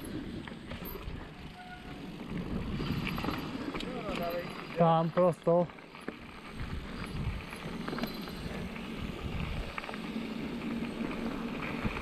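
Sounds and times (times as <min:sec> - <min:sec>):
bike clicks and rattles: 0:00.0 - 0:12.0
bike tyres rumbling on gravel: 0:00.0 - 0:12.0
wind on microphone: 0:06.4 - 0:09.8.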